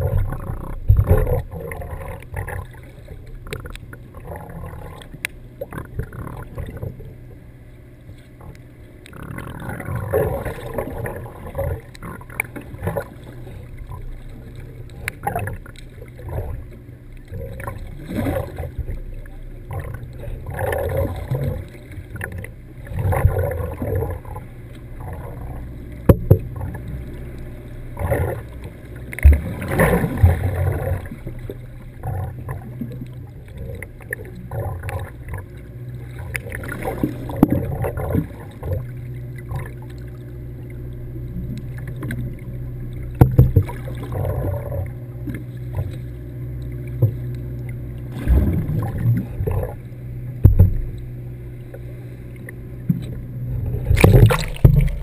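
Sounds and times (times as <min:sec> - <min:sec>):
steady low hum: 0:00.0 - 0:55.0
underwater sloshing and splashing: 0:00.0 - 0:55.0.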